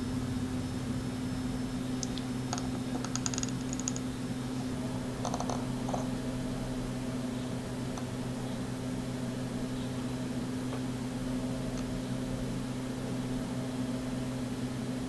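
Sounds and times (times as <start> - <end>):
flux crackling ticks: 2.0 - 2.3.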